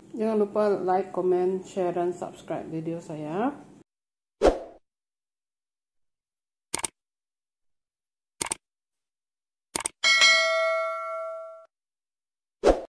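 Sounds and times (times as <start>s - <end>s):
notification bell ding: 10.0s - 11.7s.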